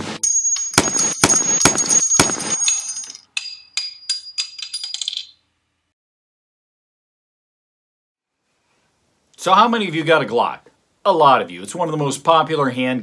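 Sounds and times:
metallic pings and clinks: 0.2s - 5.4s
gunshots: 0.8s - 2.6s.

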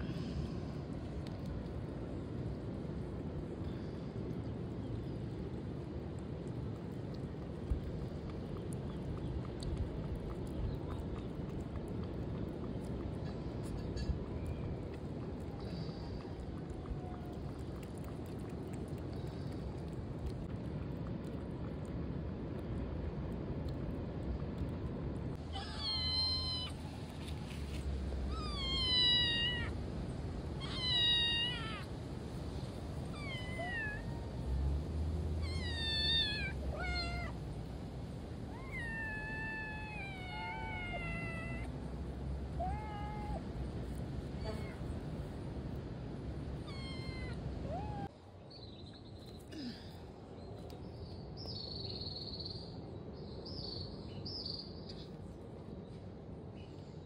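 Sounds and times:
cats meowing: 25.5s - 26.8s, 28.3s - 29.8s, 30.6s - 31.9s, 33.1s - 34.2s, 35.4s - 37.4s, 38.5s - 41.7s, 46.6s - 48.1s.

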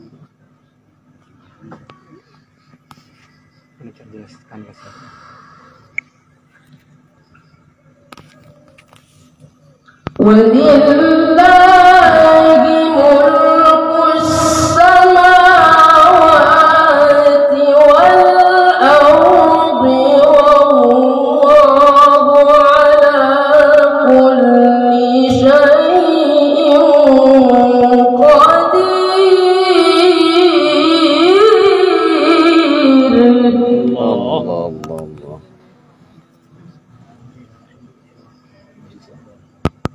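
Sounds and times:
boy reciting melodically into microphone: 10.2s - 35.3s.

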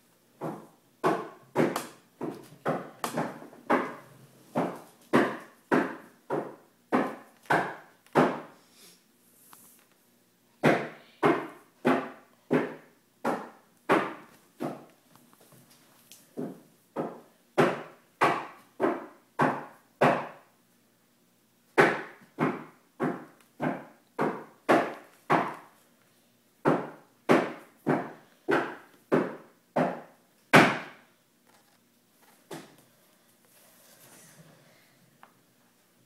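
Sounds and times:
sharp knocks on wood: 0.4s - 4.0s, 4.6s - 8.5s, 21.8s - 25.6s, 26.6s - 31.0s.

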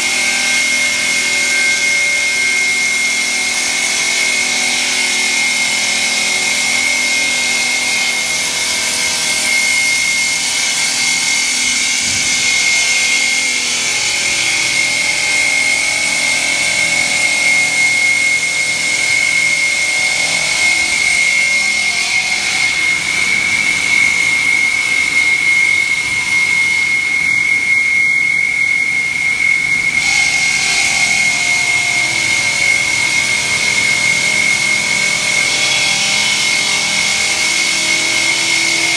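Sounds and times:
stone cutting blade whine: 0.0s - 38.9s.

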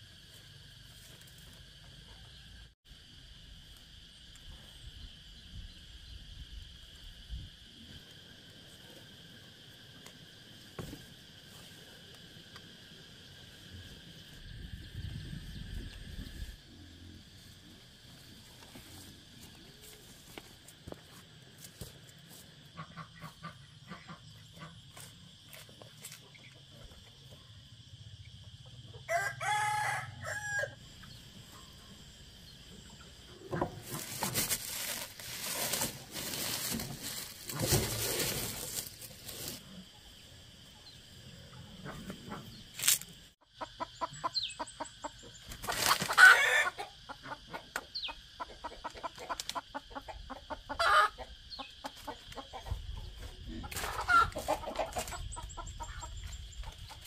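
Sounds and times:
rooster crowing: 29.0s - 30.8s
rustling: 33.7s - 39.7s
chickens clucking: 43.6s - 57.0s.

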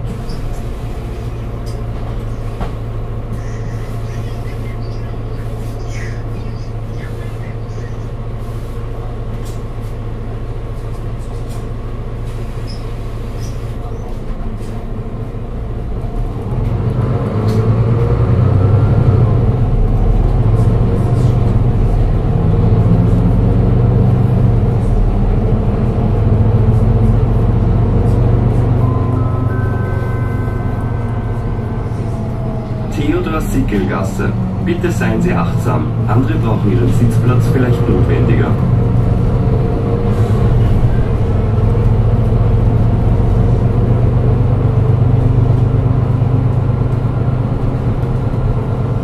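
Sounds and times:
bus diesel engine: 0.0s - 49.0s
rising engine whine: 15.2s - 49.0s.

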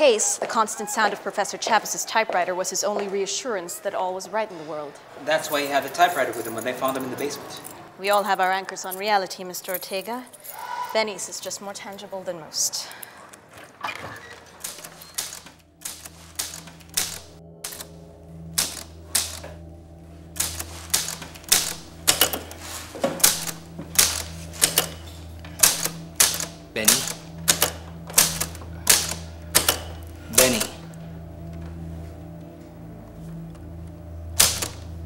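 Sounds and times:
typewriter keys clacking: 14.6s - 17.9s, 18.6s - 19.4s, 20.4s - 30.9s
low steady drone: 15.6s - 35.0s.

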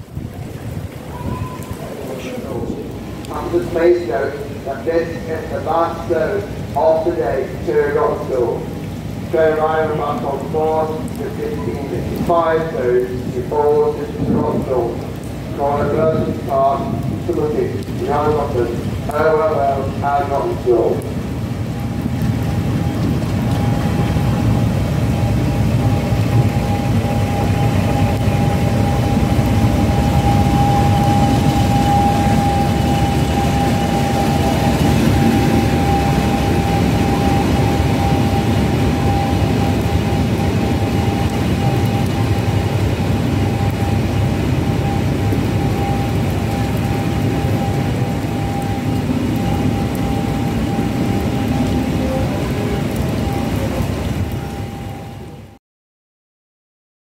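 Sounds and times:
coaches rolling past: 0.0s - 54.3s
diesel locomotive rumble: 0.0s - 55.4s
high-pitched whine: 22.5s - 55.5s.

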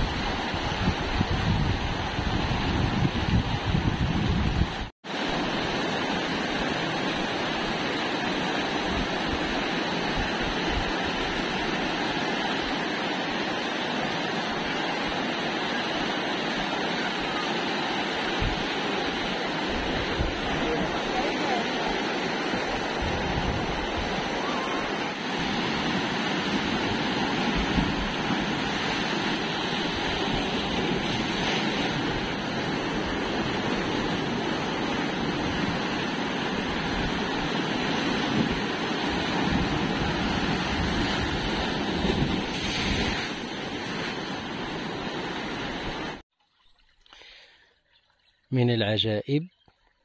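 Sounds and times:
wind rumble on microphone: 0.0s - 4.9s, 22.6s - 46.2s
surf washing over rocks: 0.0s - 46.2s.

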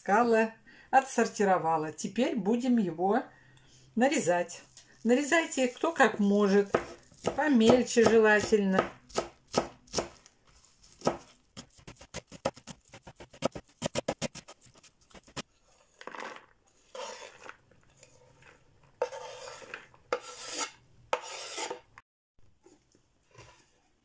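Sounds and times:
knife scraping cutting board: 5.6s - 8.6s, 10.0s - 16.2s, 16.8s - 21.9s
knife chopping on wooden board: 6.6s - 10.2s, 10.9s - 15.4s.

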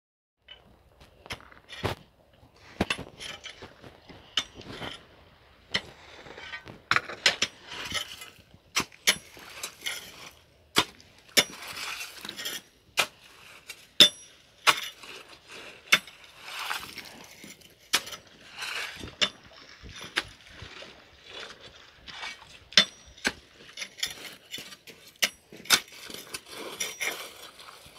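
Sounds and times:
metal tool striking gravel: 5.7s - 15.0s, 15.9s - 16.3s.

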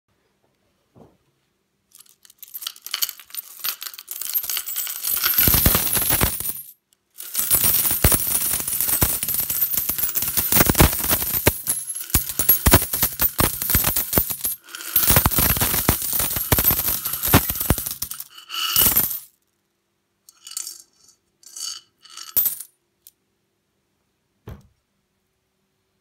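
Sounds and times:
coins pouring and jingling: 2.0s - 19.3s, 20.4s - 20.8s, 21.4s - 22.7s.

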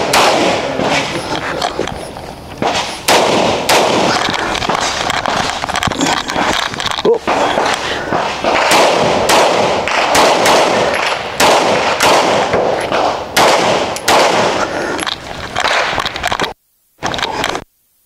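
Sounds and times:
handgun shots: 7.3s - 14.6s.

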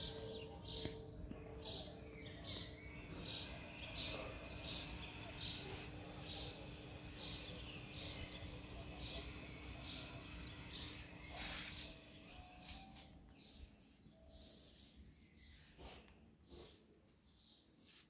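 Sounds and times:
bird chirping: 0.0s - 17.7s.

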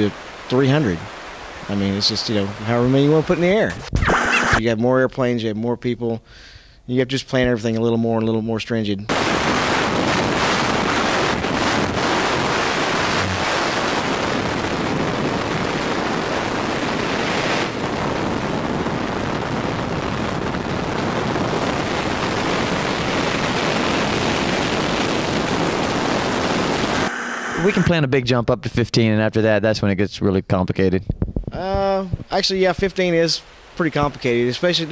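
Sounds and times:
wind roaring over microphone: 9.4s - 27.0s.

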